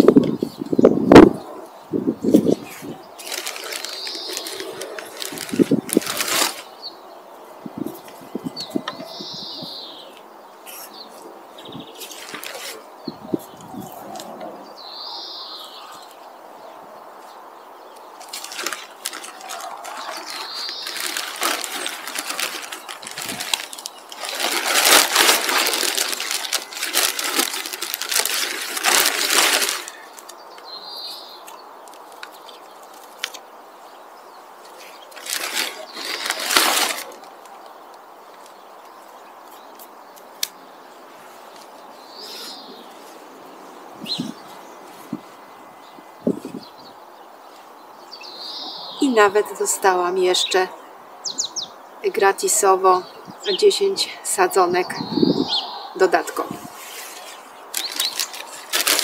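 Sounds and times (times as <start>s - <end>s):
bird chirping: 0.1s - 6.0s, 6.6s - 24.3s, 29.8s - 36.4s, 37.1s - 58.7s
plastic bag rustling: 3.2s - 6.8s, 11.9s - 12.9s, 18.2s - 30.4s, 34.7s - 37.5s, 56.3s - 59.0s.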